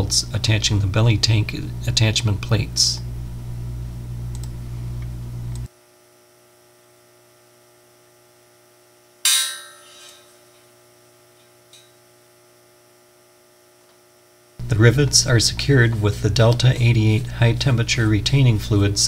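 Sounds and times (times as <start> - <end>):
electrical hum: 0.0 - 19.0
faint click: 4.3 - 5.7
metallic clang on steel plate: 9.3 - 10.5.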